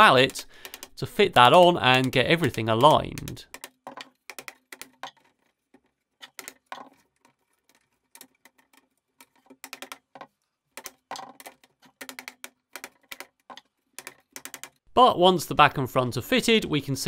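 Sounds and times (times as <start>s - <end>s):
rubber mallet knocking: 0.2s - 5.2s, 9.2s - 14.8s.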